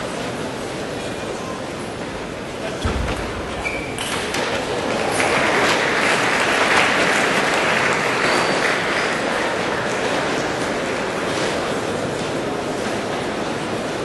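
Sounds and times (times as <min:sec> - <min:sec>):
crowd applauding: 0:04.4 - 0:12.0.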